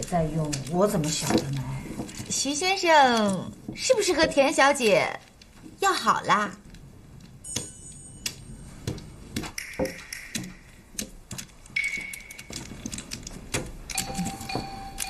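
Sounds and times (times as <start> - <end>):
mahjong tiles clattering: 0.0 - 15.0.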